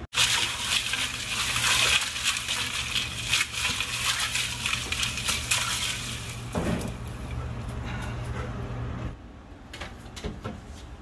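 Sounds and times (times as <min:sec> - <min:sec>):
water sloshing: 0:00.2 - 0:07.3.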